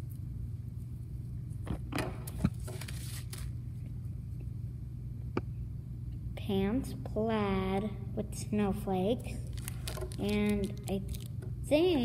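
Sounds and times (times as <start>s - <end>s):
low room hum: 0.0s - 12.0s
tissue paper rustling: 2.6s - 3.5s, 9.4s - 11.3s
plastic bags rustling: 9.4s - 11.4s.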